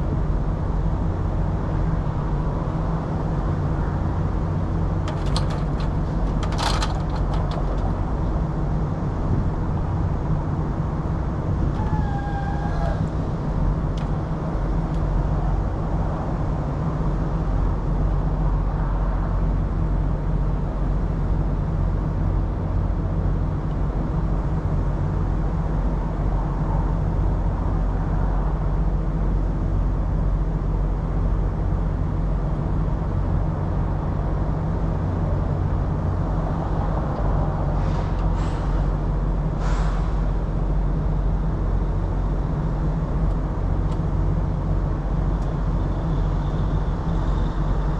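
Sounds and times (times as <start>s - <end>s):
diesel engine idling: 2.7s - 15.9s
short hisses: 37.8s - 38.8s, 39.6s - 40.2s.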